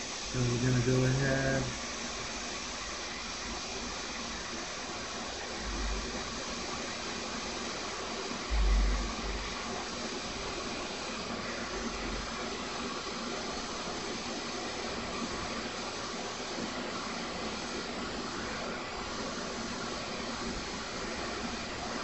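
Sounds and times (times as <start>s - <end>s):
hot air station hissing: 0.0s - 22.0s
low bumps: 8.5s - 9.6s.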